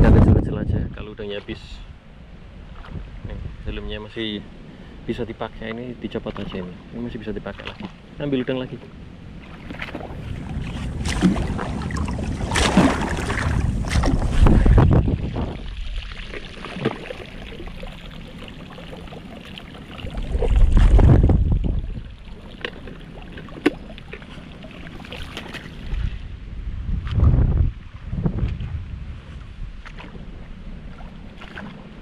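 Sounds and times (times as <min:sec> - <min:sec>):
wind gusting on microphone: 0:00.0 - 0:07.6, 0:08.9 - 0:18.0, 0:19.8 - 0:22.4, 0:25.6 - 0:32.0
sea water lapping: 0:01.9 - 0:26.4, 0:27.8 - 0:32.0.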